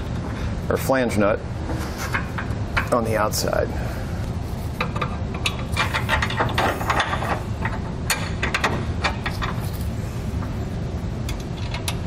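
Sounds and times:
metal bolts clicking and clinking: 4.8 - 9.7, 11.3 - 12.0.

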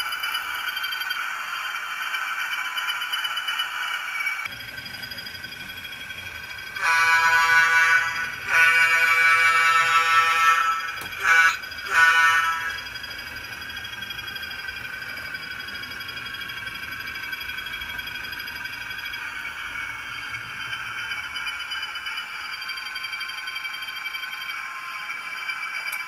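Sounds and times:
locomotive engine drone: 0.0 - 26.0
model train air horn blasts: 6.8 - 12.8.

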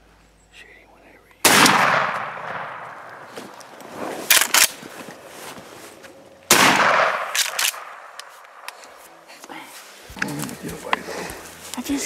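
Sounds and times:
shotgun shot echoing: 1.4 - 3.3, 6.5 - 8.7
short sharp cracks: 1.4 - 4.9, 6.5 - 9.0.

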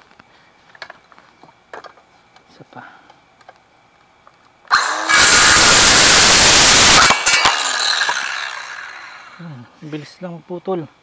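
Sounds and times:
circular saw cutting wood: 4.7 - 9.5.

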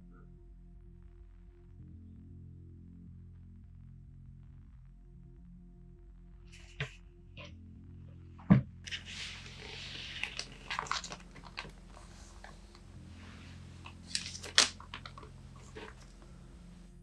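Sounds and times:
paper crinkling: 8.9 - 16.3.

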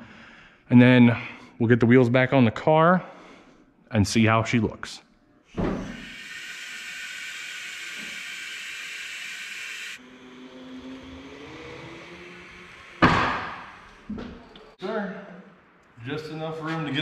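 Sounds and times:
hydraulic valve hissing: 5.5 - 14.8.

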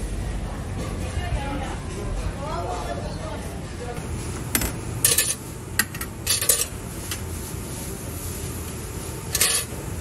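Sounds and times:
utensils clinking on metal trays: 4.4 - 7.3, 9.2 - 9.9.

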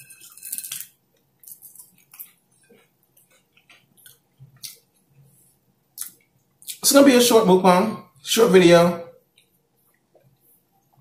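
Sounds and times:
crunchy chewing of chips: 0.2 - 4.9.

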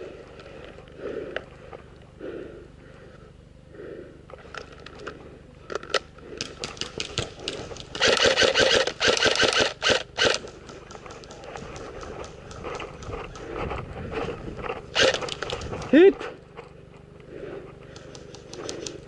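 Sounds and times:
airsoft guns firing: 7.9 - 12.3, 15.0 - 15.6.

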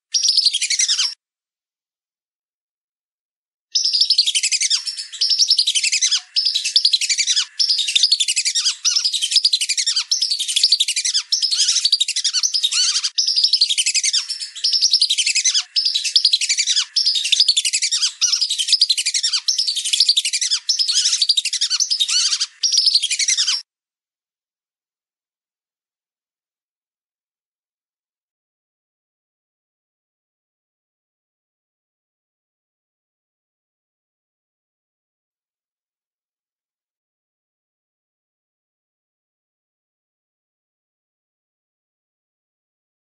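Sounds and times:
ducks whistling: 4.0 - 23.6.

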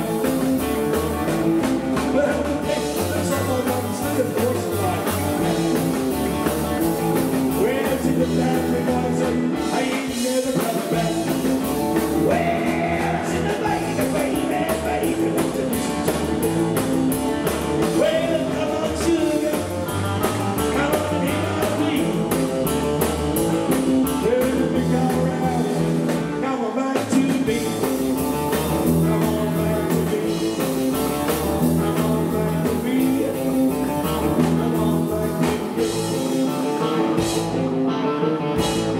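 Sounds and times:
slapped double bass: 0.0 - 26.5, 27.1 - 38.9
man singing lead vocal: 0.0 - 37.6
drum kit: 0.0 - 38.9
electric lead guitar: 0.0 - 38.9.

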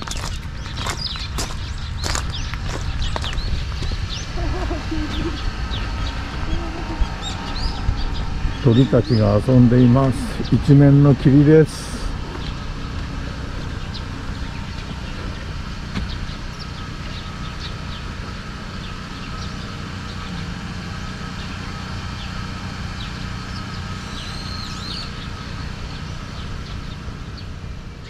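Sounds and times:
small birds chirping: 0.0 - 28.0
steady low hum: 0.0 - 28.0.

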